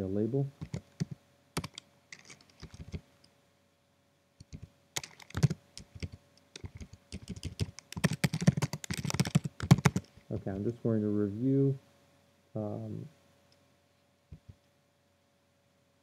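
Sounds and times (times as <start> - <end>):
typing on a computer keyboard: 0.6 - 3.0, 4.4 - 10.1.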